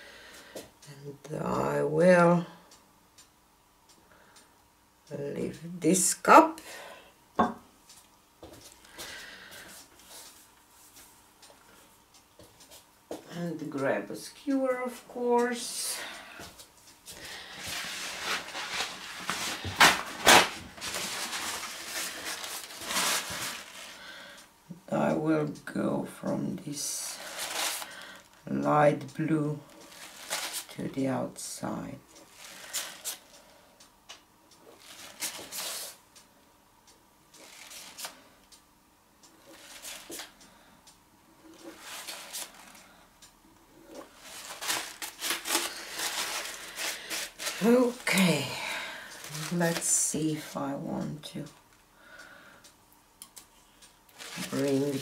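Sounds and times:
rustling and handling noises: 0:14.8 - 0:24.5, 0:26.7 - 0:36.0, 0:37.3 - 0:38.6, 0:39.3 - 0:40.4, 0:41.4 - 0:43.1, 0:43.8 - 0:51.8, 0:53.2 - 0:55.0.

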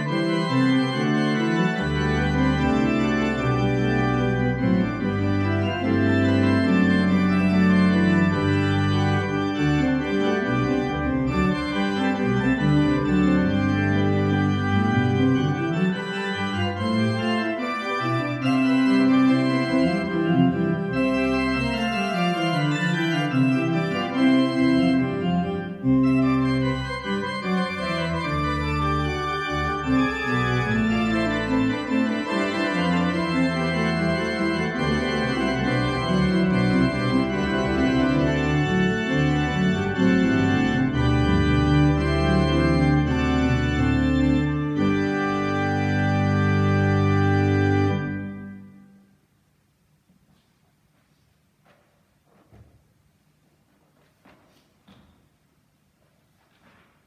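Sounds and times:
organ playing chords: 0:00.0 - 0:49.2.

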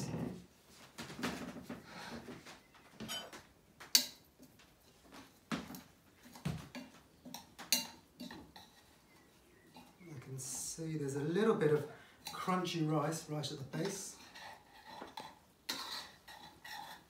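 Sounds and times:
metal spoon scraping a pot: 0:07.3 - 0:10.1, 0:13.8 - 0:17.0.

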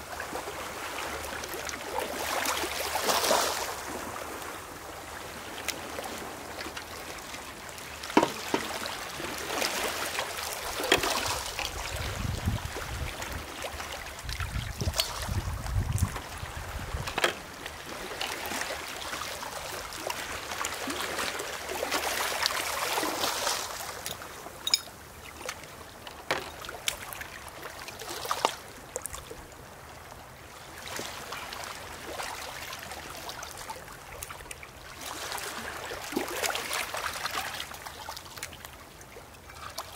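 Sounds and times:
sea water washing among rocks: 0:08.0 - 0:25.0
glass and metal knocks: 0:08.2 - 0:08.7, 0:24.6 - 0:24.9.

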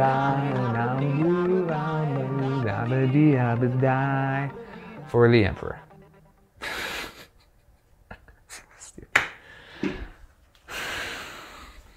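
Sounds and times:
man breathing: 0:04.5 - 0:05.1, 0:09.4 - 0:11.9.

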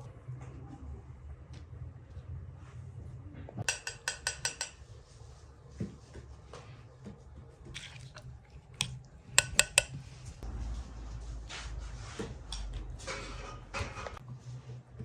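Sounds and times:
spoon scraping filling in bowl: 0:07.7 - 0:10.4.

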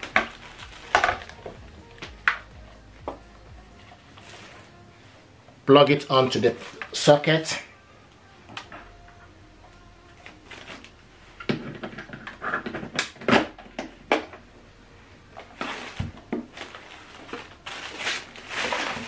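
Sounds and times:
plastic bag rustling: 0:00.0 - 0:07.7, 0:10.2 - 0:13.0, 0:15.3 - 0:19.0.

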